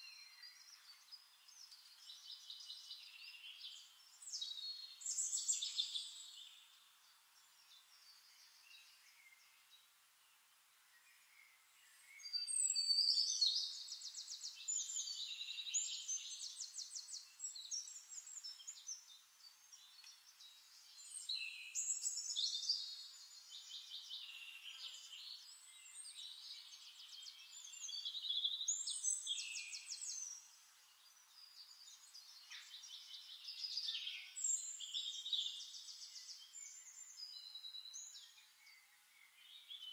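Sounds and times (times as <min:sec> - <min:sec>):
songbirds chirping and trilling: 0:00.0 - 0:39.9.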